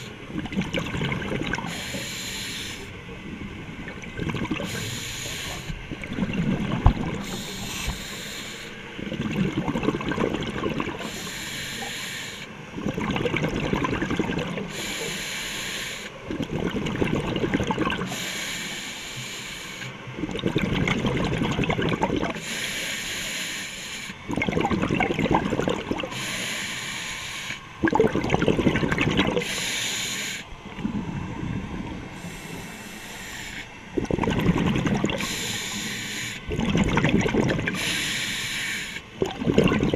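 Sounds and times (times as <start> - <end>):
exhaust bubbles bursting: 0.3 - 1.7, 3.8 - 4.7, 5.9 - 7.3, 9.0 - 11.1, 12.8 - 14.7, 16.3 - 18.1, 20.2 - 22.4, 24.3 - 26.1, 27.8 - 29.5, 34.0 - 35.3, 36.5 - 37.8, 39.2 - 39.9
regulator inhalation hiss: 1.7 - 2.9, 4.6 - 5.8, 7.2 - 8.9, 11.0 - 12.6, 14.7 - 16.2, 18.1 - 19.9, 22.4 - 24.2, 26.1 - 27.7, 29.4 - 30.5, 32.2 - 33.7, 35.2 - 36.5, 37.8 - 39.1.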